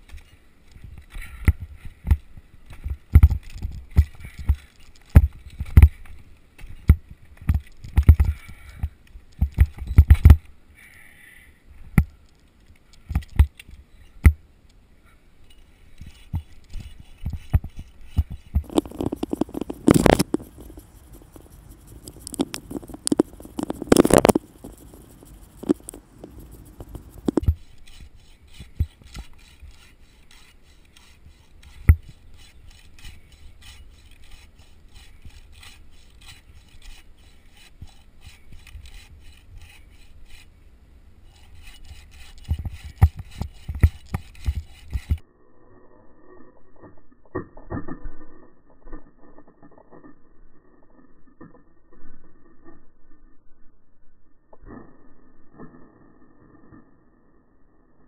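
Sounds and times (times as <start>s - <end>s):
hand saw rasping through wood: 27.2s - 40.5s, 41.3s - 45.2s.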